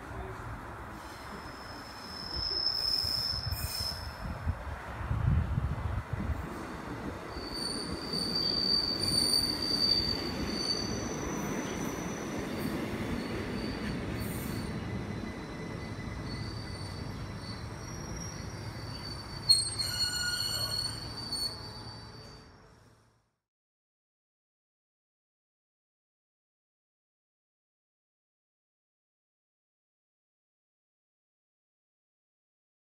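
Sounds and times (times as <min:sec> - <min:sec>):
train rumbling past: 0:00.0 - 0:23.2
high wheel squeal: 0:01.0 - 0:04.3, 0:07.3 - 0:12.3, 0:13.2 - 0:22.6.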